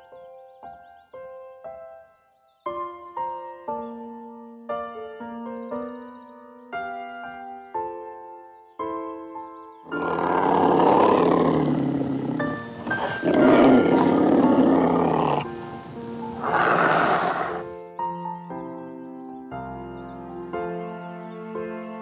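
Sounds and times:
soft background music: 0.0s - 22.0s
tiger roaring: 9.9s - 17.7s.

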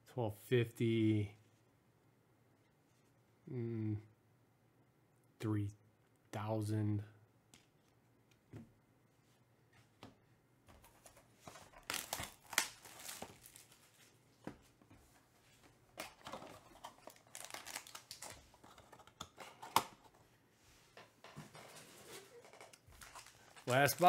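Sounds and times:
plastic wrapping crinkling: 10.9s - 14.2s, 16.0s - 19.0s, 22.0s - 24.0s.

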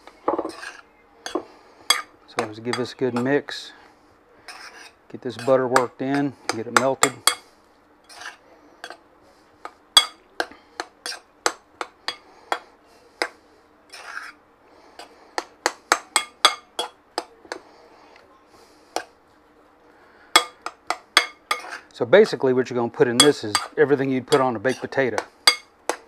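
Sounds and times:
metal spoon clinking on glass bowl: 23.2s - 24.8s.

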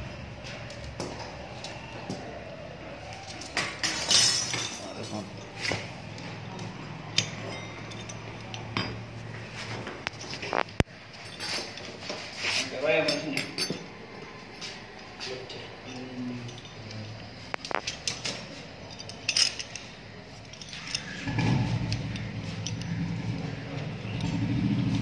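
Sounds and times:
metal clinks and knocks: 3.2s - 23.4s
low engine hum: 21.2s - 25.0s.

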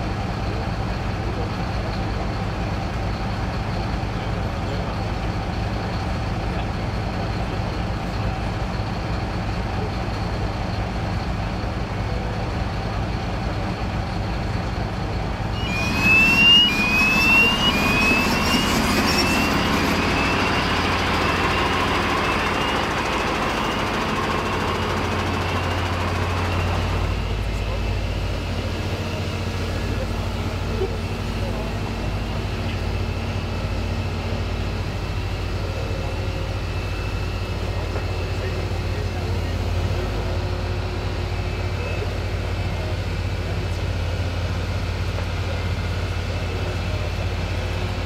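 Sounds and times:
diesel engine idling: 0.0s - 48.0s
loud machine noise: 0.0s - 48.0s
short rising whistles: 15.5s - 27.3s.

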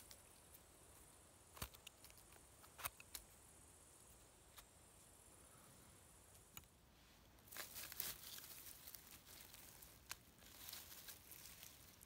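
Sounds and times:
twigs and grass rustling: 0.0s - 3.4s, 6.2s - 12.0s.

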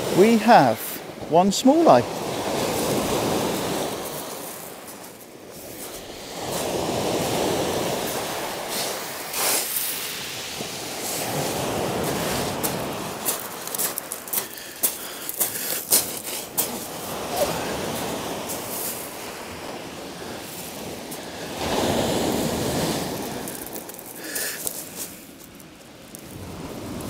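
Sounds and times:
waves breaking on a shingle beach: 0.0s - 27.0s
footsteps on pebbles: 12.0s - 16.9s, 23.0s - 27.0s.

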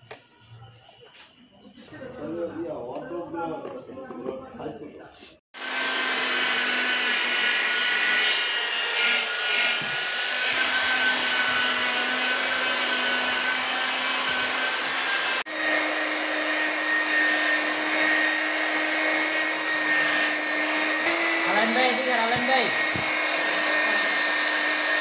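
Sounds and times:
electric polisher motor whining: 5.6s - 25.0s.

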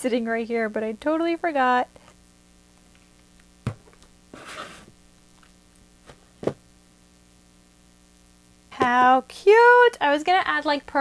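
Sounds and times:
faint electrical hum: 0.0s - 11.0s
objects set down on desk: 3.6s - 4.9s, 6.0s - 6.6s
scraping rustle: 4.3s - 5.0s.

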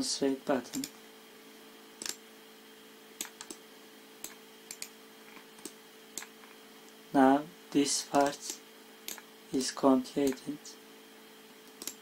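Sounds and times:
low electrical hum: 0.0s - 12.0s
computer mouse clicks: 0.7s - 1.0s, 2.0s - 2.2s, 3.2s - 3.6s, 4.2s - 4.9s, 5.5s - 6.6s, 8.2s - 9.3s, 10.2s - 10.5s, 11.6s - 12.0s.

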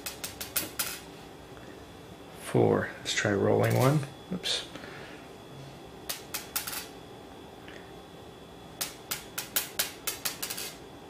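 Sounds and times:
magnet balls clicking on stone: 0.0s - 1.0s, 6.1s - 6.9s, 8.8s - 10.8s.

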